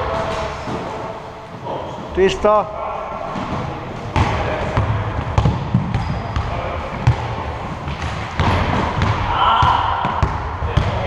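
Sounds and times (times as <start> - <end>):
basketball dribbling on court: 4.2 - 11.0.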